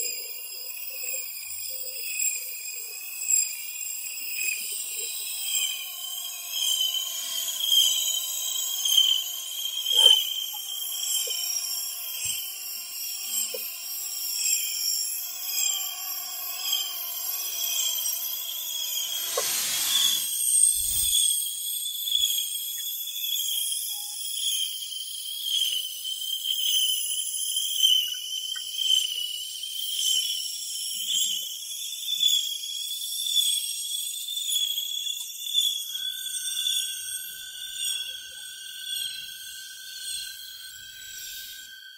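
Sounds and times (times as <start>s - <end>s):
high shimmering ambient drone: 0.0s - 32.1s, 35.0s - 41.9s
wavering high whistling tones: 0.0s - 41.9s
dense high hiss: 4.2s - 21.6s.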